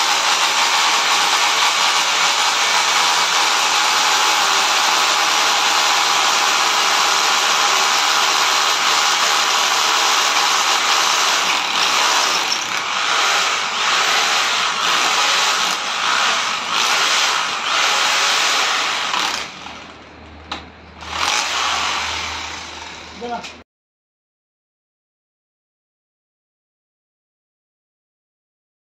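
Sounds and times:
power drill running: 0.0s - 19.9s, 21.0s - 23.3s.

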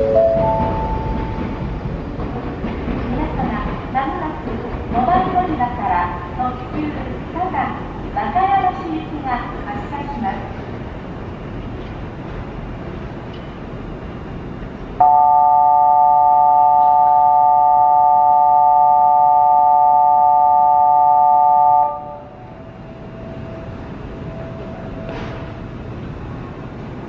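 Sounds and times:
electronic departure signal chord: 15.0s - 22.3s.

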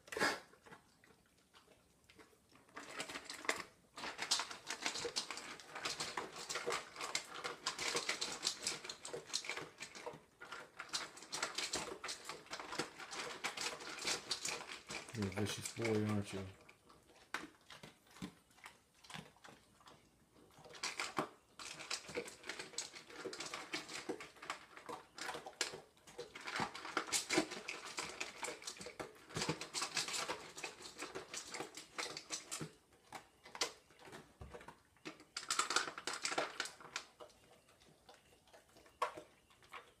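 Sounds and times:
kibble crunching: 0.0s - 40.0s
kibble clinking on metal bowl: 33.4s - 39.9s.

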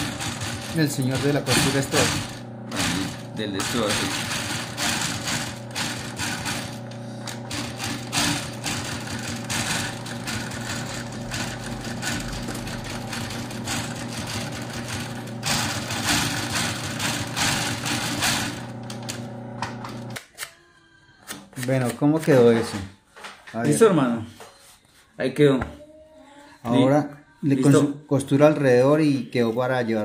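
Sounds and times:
sewing machine motor hum: 0.0s - 20.2s.

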